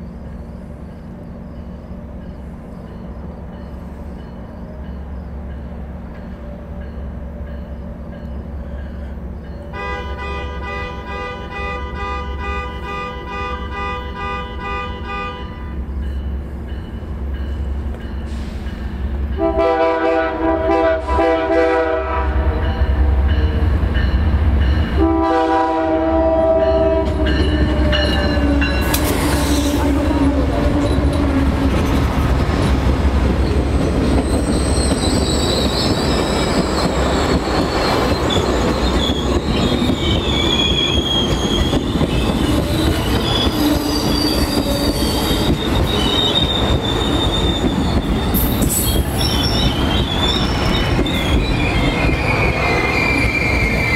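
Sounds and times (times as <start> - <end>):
train horn blasts: 9.7 - 15.8, 19.3 - 23.7, 24.9 - 29.0
wheels clattering on rail: 26.2 - 53.9
wheel squeal: 33.4 - 53.9.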